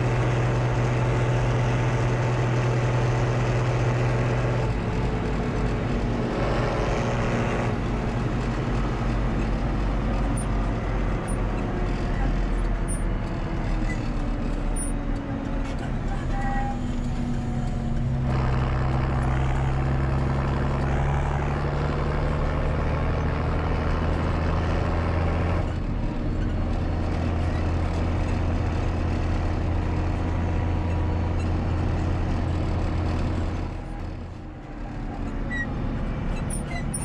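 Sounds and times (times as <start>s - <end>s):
tractor diesel engine running: 0.0s - 37.0s.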